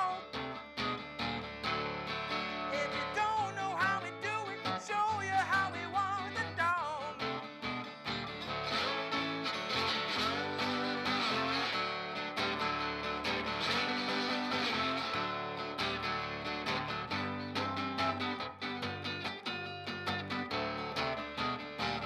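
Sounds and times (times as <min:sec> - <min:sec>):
wordless sung vocal: 0:00.0 - 0:00.6, 0:02.4 - 0:07.5
acoustic guitar blues riff: 0:00.0 - 0:22.0.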